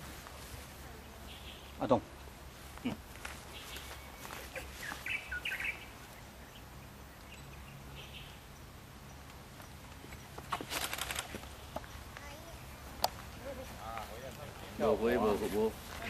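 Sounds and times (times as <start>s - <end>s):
bird chirps: 3.5s - 10.3s.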